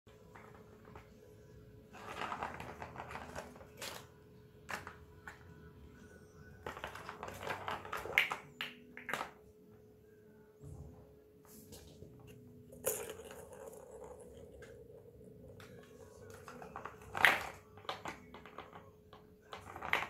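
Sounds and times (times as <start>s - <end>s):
plastic ball rattling in toy track: 12.7s - 15.0s.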